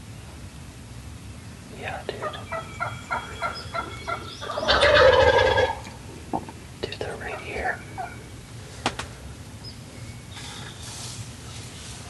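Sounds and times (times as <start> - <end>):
turkey gobble: 2.2 - 6.0, 7.3 - 8.2
turkeys calling short notes: 2.2 - 6.0.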